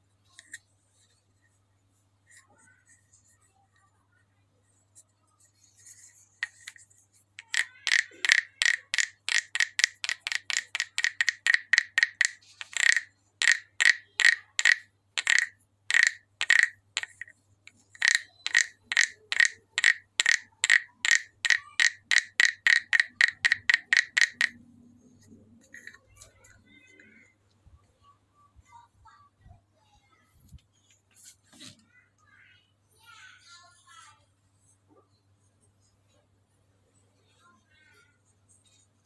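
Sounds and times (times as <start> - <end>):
wooden frog guiro rasping croaks: 7.4 - 17.3, 17.9 - 24.6.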